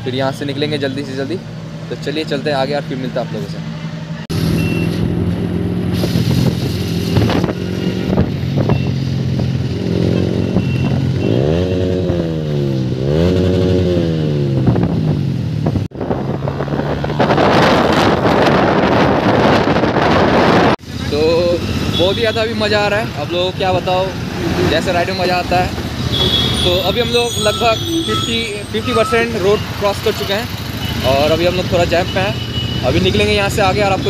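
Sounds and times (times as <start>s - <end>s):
motorcycle engine revving: 3.5s - 27.2s
wind rushing over microphone: 5.7s - 10.8s, 14.4s - 20.8s.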